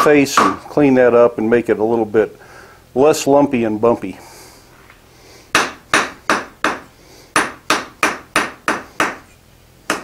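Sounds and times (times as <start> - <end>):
hammer striking steel on anvil: 0.0 - 0.6.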